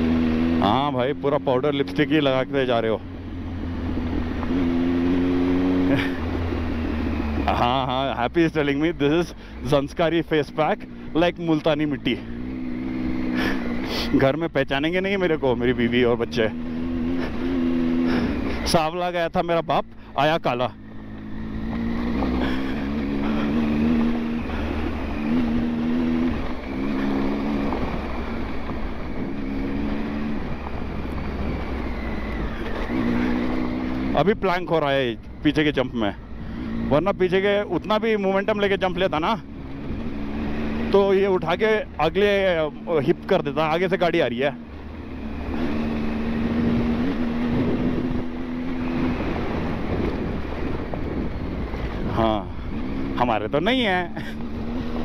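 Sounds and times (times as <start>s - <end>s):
motorcycle engine revving: 0.0s - 55.0s
wind on microphone: 46.6s - 52.2s.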